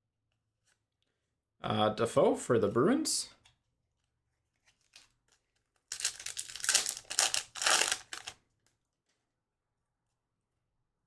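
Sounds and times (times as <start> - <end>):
wrapper crinkling and tearing: 4.7 - 8.4.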